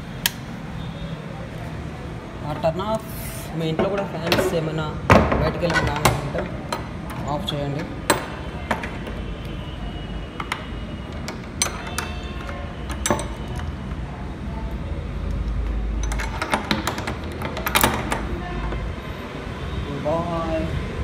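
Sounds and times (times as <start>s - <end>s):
padlock locking clicks: 0.2s - 0.5s, 10.4s - 14.0s, 15.2s - 18.3s
padlock and keys clinking: 10.3s - 14.1s, 15.1s - 18.9s.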